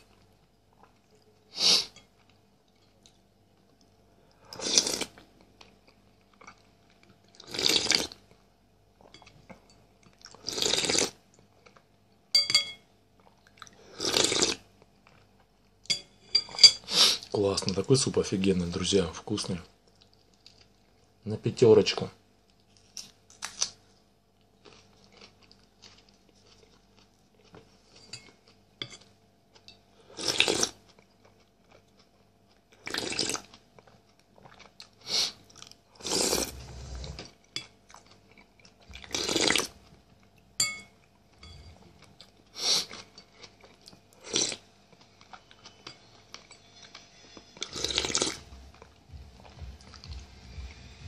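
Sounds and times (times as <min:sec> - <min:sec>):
chewing and mouth noises: 0:24.4 - 0:50.8.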